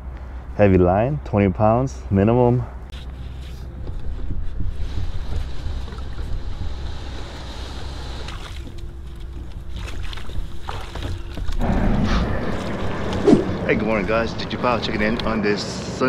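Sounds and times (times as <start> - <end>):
water sloshing: 8.2 - 14.0
wind rumbling on microphone: 11.4 - 15.6.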